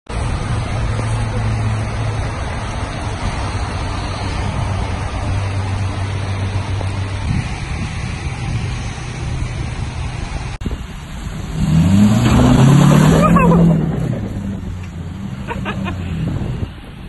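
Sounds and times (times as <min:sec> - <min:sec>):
truck engine idling: 0:00.1 - 0:11.6
broad rushing noise: 0:00.1 - 0:17.0.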